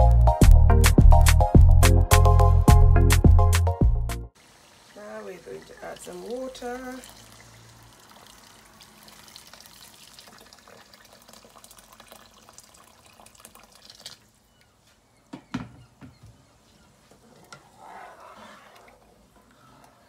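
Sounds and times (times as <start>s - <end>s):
liquid pouring and splashing: 4.4s - 14.4s.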